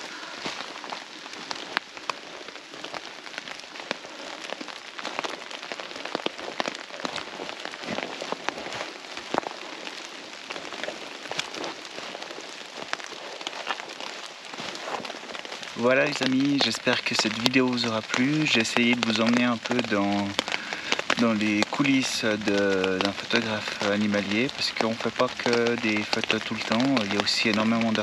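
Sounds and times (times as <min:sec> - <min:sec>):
rain hiss: 0:00.0 - 0:28.0
raindrops tapping on tarp: 0:00.0 - 0:28.0.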